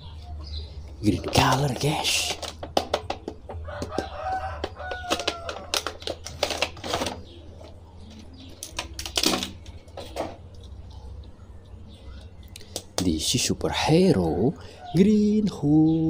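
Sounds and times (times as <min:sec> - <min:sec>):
plastic packaging crinkling: 0:04.8 - 0:10.2.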